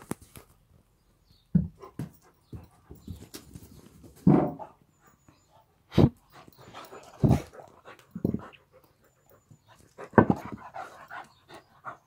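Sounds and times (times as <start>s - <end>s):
dogs making sharp noises: 1.6s - 12.0s
dogs mouthing and breathing: 4.6s - 12.0s.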